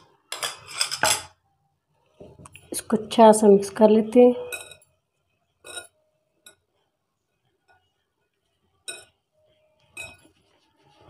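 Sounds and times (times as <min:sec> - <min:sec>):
clinks on glass bowl: 0:04.4 - 0:04.8, 0:08.9 - 0:09.1, 0:09.9 - 0:10.3.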